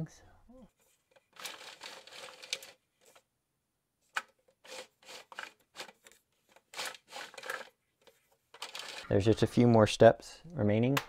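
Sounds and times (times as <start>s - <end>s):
plastic parts scraping and clicking: 0.8s - 3.3s, 4.1s - 9.4s.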